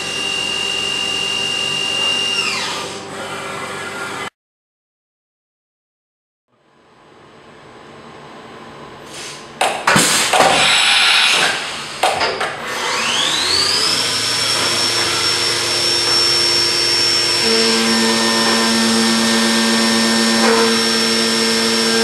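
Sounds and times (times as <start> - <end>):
end mill cutting metal: 10.6 - 22.0
spindle whine: 13.0 - 22.0.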